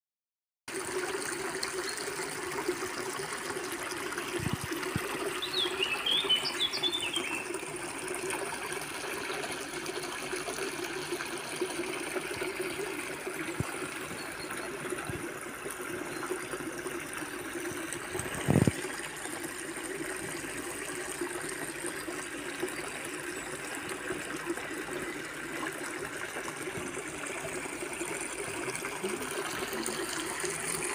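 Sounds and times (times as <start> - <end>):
water trickling over weir: 0.7 - 30.9
bird chirping: 5.4 - 7.4.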